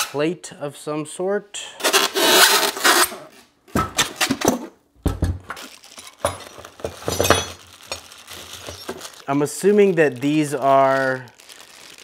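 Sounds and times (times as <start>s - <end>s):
styrofoam rubbing and scraping: 8.2s - 9.0s.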